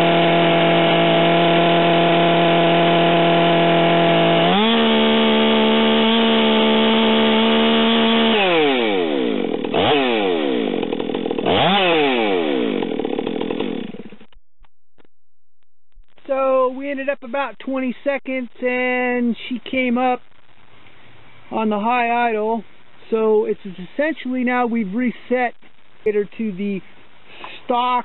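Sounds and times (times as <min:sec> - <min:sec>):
chainsaw engine at full throttle: 0:00.0 - 0:14.3.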